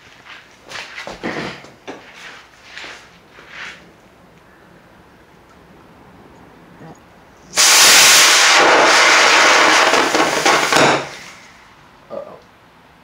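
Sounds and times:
rocket motor hissing and sputtering: 0:07.5 - 0:11.5.

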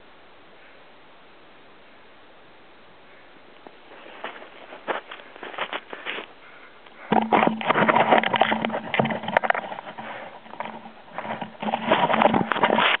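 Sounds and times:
steady low hum: 0:00.0 - 0:13.0
camera handling on snow and ice: 0:03.6 - 0:06.4, 0:07.1 - 0:13.0.

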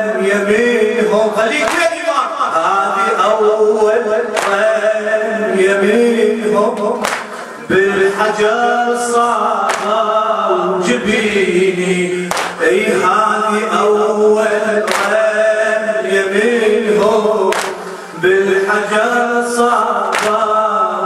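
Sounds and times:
man chanting a lament: 0:00.0 - 0:21.0
chest-beating slaps: 0:04.4 - 0:04.7, 0:06.8 - 0:07.4, 0:09.7 - 0:10.0, 0:12.3 - 0:12.6, 0:14.9 - 0:15.2, 0:17.5 - 0:17.8, 0:20.1 - 0:20.4.

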